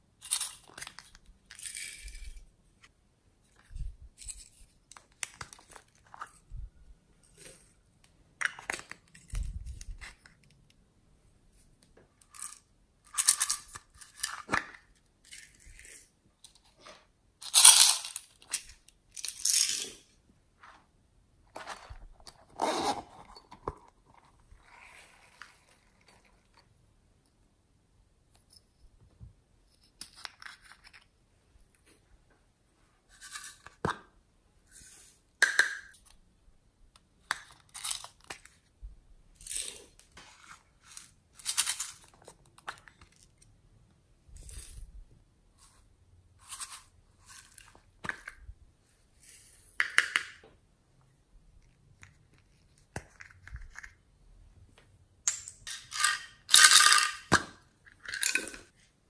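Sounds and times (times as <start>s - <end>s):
zipper being pulled: 22.5s - 23.4s.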